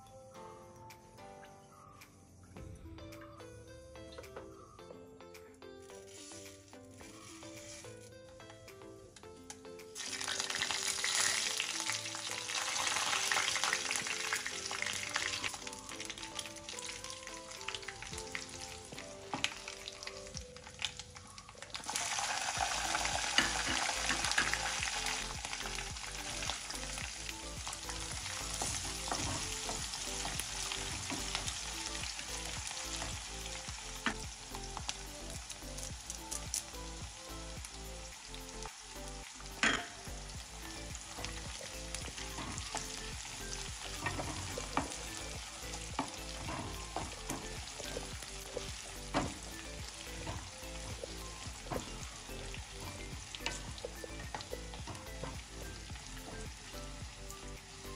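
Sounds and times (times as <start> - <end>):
wooden spatula stirring pan: 6.0 - 8.0, 21.9 - 34.2
garlic sizzling in hot oil: 6.0 - 8.1, 10.0 - 57.9
oil crackling and popping: 9.2 - 57.9.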